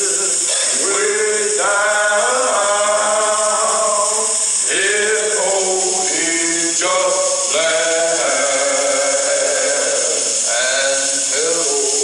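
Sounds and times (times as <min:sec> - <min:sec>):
men singing gospel song: 0:00.0 - 0:12.0.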